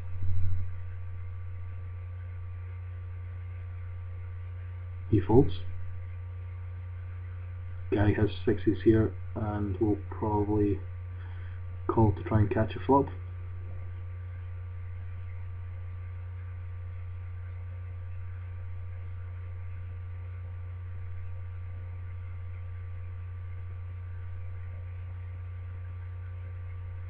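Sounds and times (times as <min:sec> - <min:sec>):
faint high steady tones: 0:00.0 - 0:27.0
steady low hum: 0:00.0 - 0:27.0.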